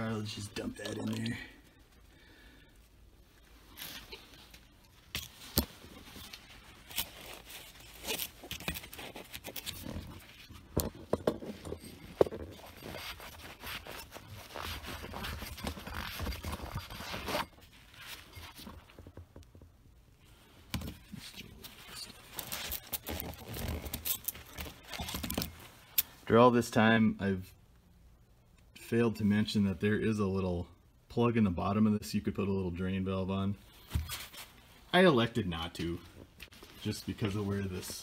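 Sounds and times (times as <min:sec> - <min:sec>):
scraping and rustling: 0:03.2 - 0:26.0.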